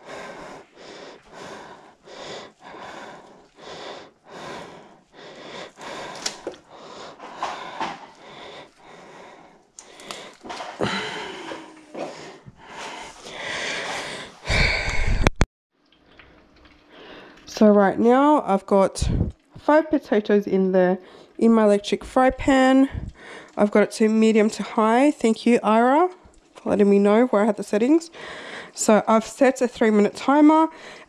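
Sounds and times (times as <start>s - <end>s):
close breathing: 0.0s - 15.4s, 22.9s - 23.6s, 28.1s - 28.8s, 30.7s - 31.0s.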